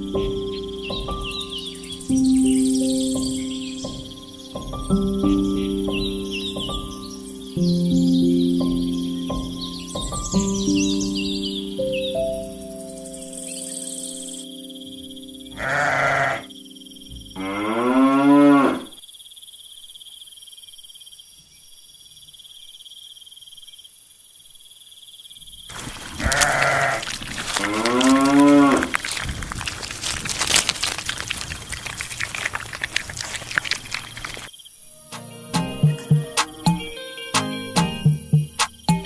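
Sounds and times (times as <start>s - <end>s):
farm animal bleating: 15.5s - 16.5s, 17.4s - 18.9s, 25.7s - 29.0s
dense crackling clicks: 25.7s - 34.5s.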